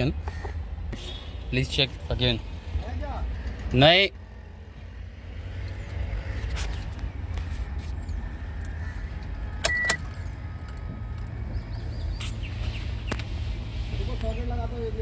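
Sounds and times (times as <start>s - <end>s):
car engine idling: 0.0s - 15.0s
high electronic beep: 9.6s - 10.0s.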